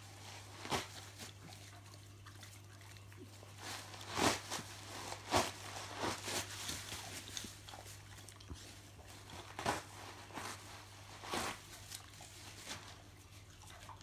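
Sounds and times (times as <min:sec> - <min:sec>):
tissue paper crinkling and tearing: 0:03.6 - 0:07.7, 0:08.6 - 0:13.0.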